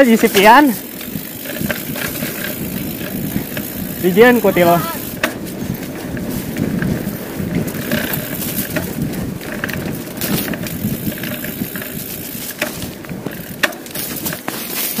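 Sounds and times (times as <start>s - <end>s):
bike knocking over bumps: 0.0s - 15.0s
tyre and wind rush: 0.0s - 15.0s.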